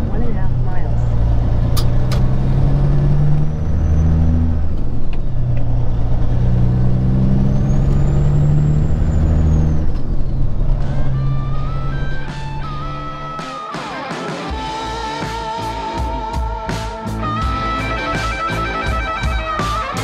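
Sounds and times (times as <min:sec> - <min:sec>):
truck diesel engine running: 0:00.0 - 0:13.5.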